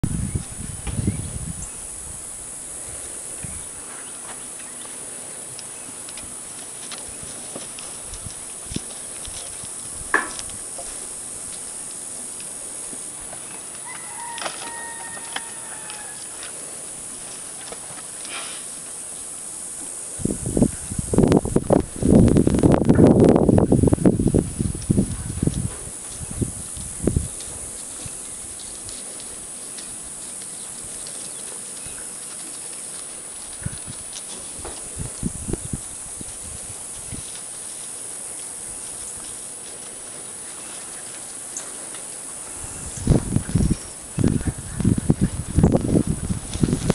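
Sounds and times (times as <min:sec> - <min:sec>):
steady hiss: 0:00.0 - 0:46.9
rooster crowing: 0:13.8 - 0:16.4.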